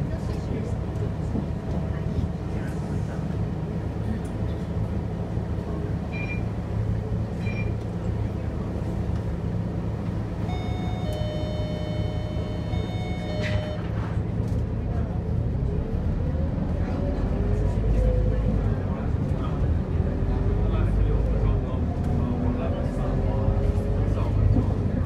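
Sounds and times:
diesel bus engine idling: 0.0s - 25.0s
short high beeps: 10.5s - 13.9s.

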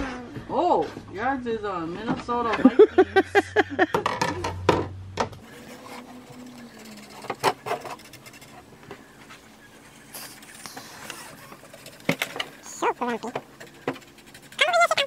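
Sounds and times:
marker rubbing on wood: 5.5s - 15.0s.

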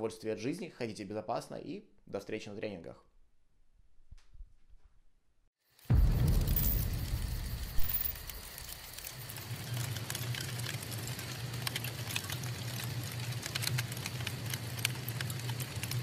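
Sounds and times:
campfire crackling and snapping: 5.8s - 16.0s
low rumble: 5.9s - 9.5s.

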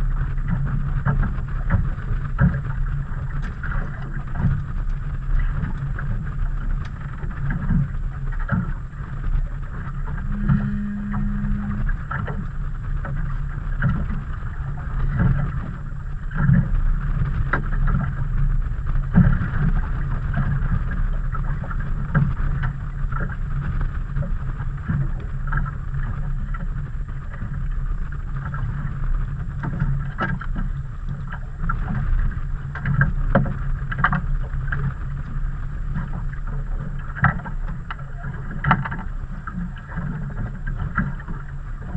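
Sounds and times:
rumble of wind and water: 0.0s - 41.9s
water lapping against boat hull: 0.0s - 41.9s
brief low hum: 9.9s - 12.6s.

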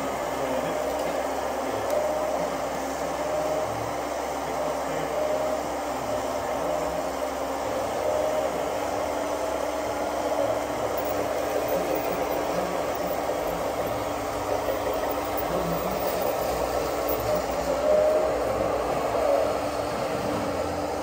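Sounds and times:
faint steady whine: 0.0s - 21.0s
small electric motors whirring: 4.5s - 20.6s.

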